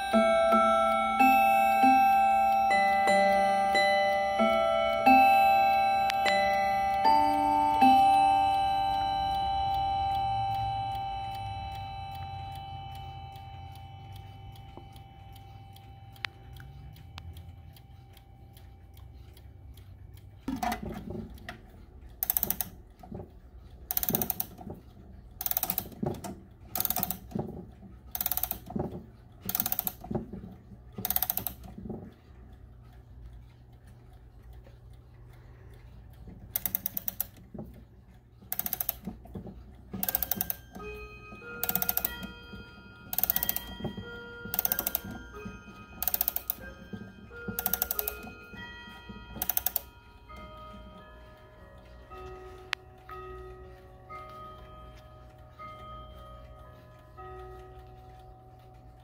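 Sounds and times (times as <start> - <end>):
clock chime rods ringing: 0.0 - 19.7, 26.7 - 27.4, 28.2 - 28.8, 31.0 - 31.6, 39.8 - 59.0
clock winding ratchet clicks: 0.0 - 59.0.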